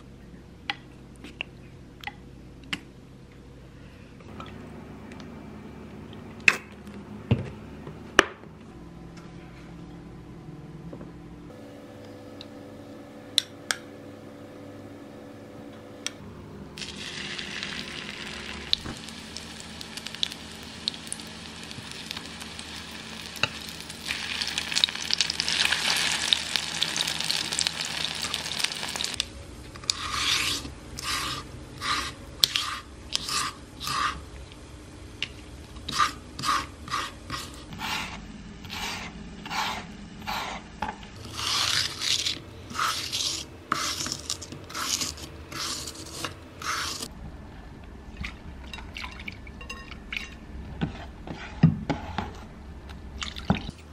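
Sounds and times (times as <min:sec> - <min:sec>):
meat sizzling in a pan: 0:16.8 - 0:29.2.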